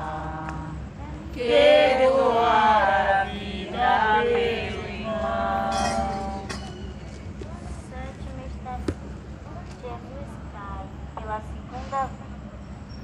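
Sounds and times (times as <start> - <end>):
voices singing a hymn: 0.0 - 7.1.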